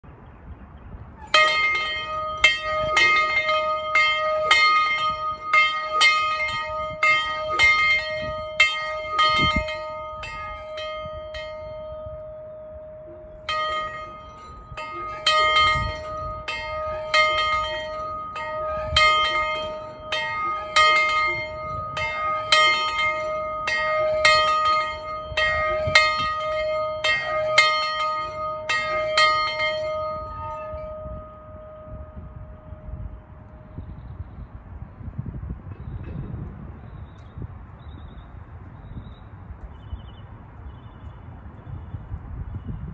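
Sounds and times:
locomotive bell clanging: 0:01.2 - 0:33.8.

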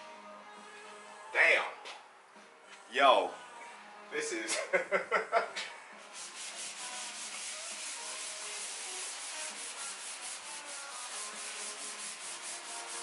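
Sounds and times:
scouring pad scrubbing steel: 0:06.2 - 0:13.0.

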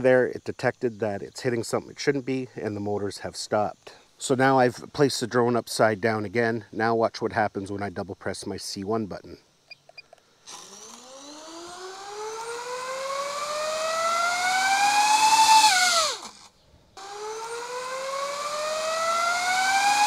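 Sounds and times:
drone motors whining: 0:10.5 - 0:20.0.

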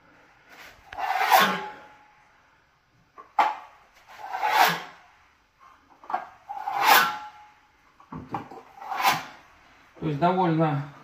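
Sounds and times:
putty knife scraping wall: 0:00.9 - 0:01.9, 0:03.4 - 0:05.0, 0:06.1 - 0:07.4, 0:08.4 - 0:09.4.

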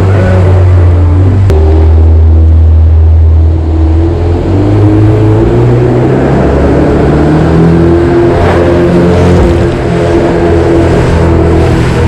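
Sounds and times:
boat engine running hard: 0:00.0 - 0:12.0.

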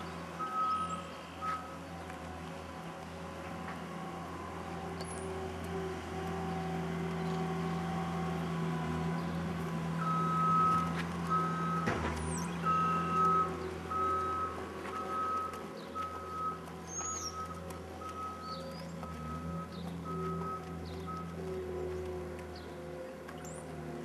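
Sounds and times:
reversing alarm beeping: 0:00.4 - 0:01.8, 0:10.0 - 0:21.9.

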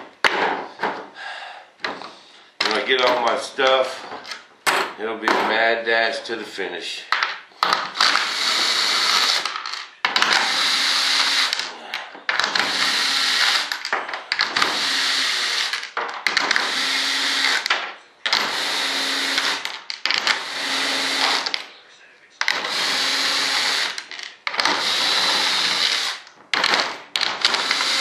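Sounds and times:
cordless drill driving screws: 0:08.0 - 0:09.5, 0:10.2 - 0:11.7, 0:12.4 - 0:13.8, 0:14.4 - 0:15.8, 0:16.4 - 0:17.7, 0:18.3 - 0:21.6, 0:22.4 - 0:28.0.

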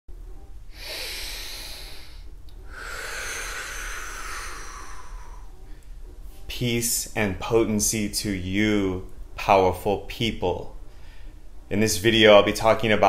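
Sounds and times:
man breathing in and out: 0:00.6 - 0:06.2, 0:10.8 - 0:11.7.

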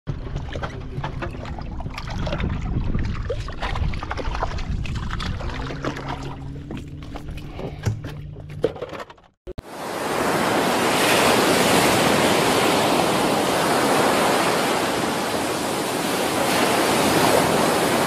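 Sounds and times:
boat engine hum: 0:00.1 - 0:02.8, 0:03.4 - 0:18.0
rushing water noise: 0:09.6 - 0:18.0.

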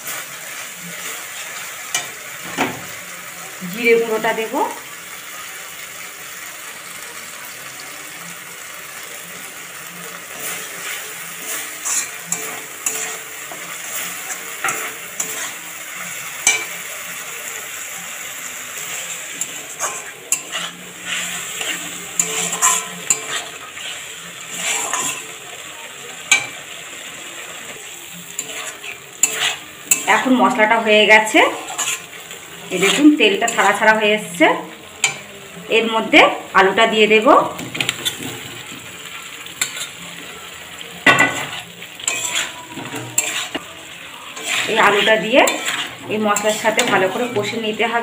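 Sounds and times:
paste sizzling in oil: 0:00.0 - 0:48.0
spatula scraping pan: 0:10.1 - 0:17.2, 0:18.0 - 0:25.5, 0:26.3 - 0:35.3, 0:37.6 - 0:48.0.

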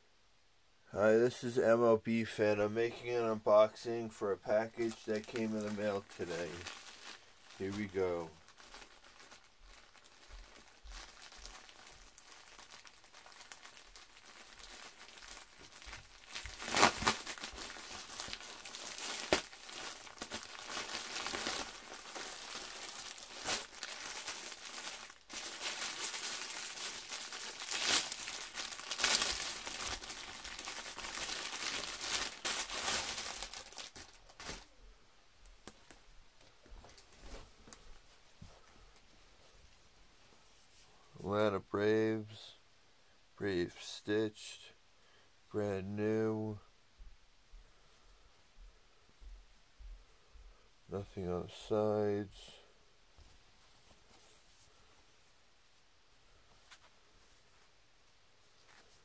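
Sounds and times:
plastic bag crinkling and tearing: 0:04.6 - 0:34.7.

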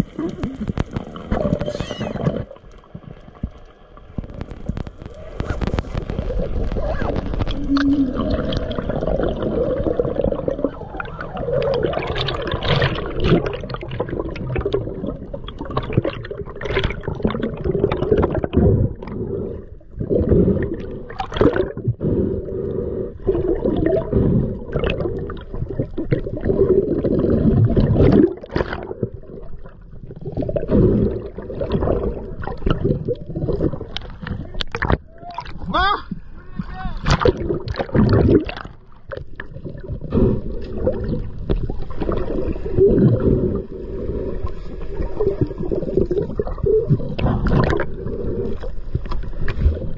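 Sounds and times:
underwater rushing and gurgling: 0:00.0 - 0:49.9.

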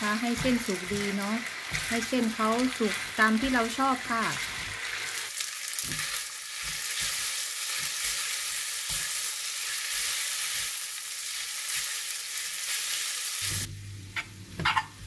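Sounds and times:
noodles sizzling in hot oil: 0:00.0 - 0:15.0.

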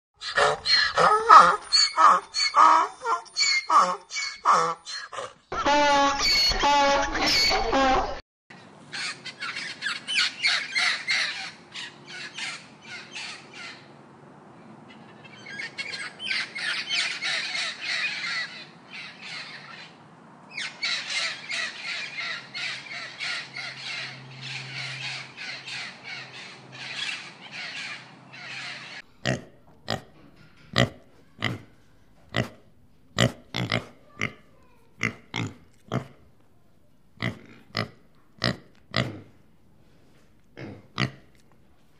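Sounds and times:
pigs grunting: 0:00.2 - 0:05.4, 0:29.2 - 0:30.1, 0:30.7 - 0:32.6, 0:33.2 - 0:36.3, 0:37.2 - 0:39.4, 0:40.6 - 0:41.4
parrots squawking: 0:00.2 - 0:08.2, 0:08.9 - 0:13.9, 0:15.3 - 0:29.1.

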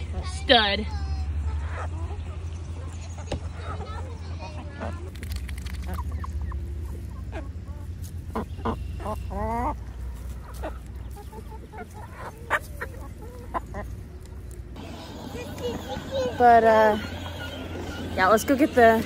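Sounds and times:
poultry calling: 0:05.8 - 0:19.0.

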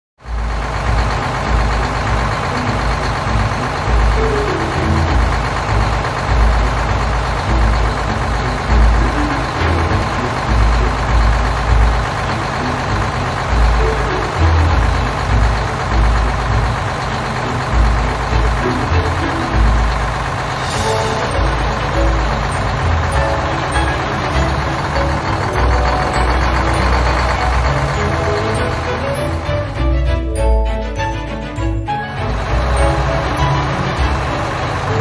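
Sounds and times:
heavy truck engine rumbling: 0:00.2 - 0:35.0.

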